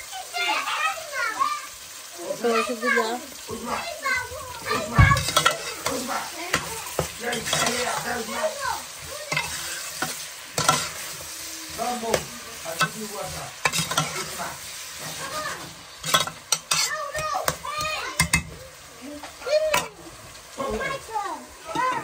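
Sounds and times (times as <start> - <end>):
onions sizzling in a pot: 0.0 - 22.0
ladle scraping against a pot: 5.2 - 8.2, 8.9 - 11.5, 12.8 - 14.4, 16.0 - 16.9.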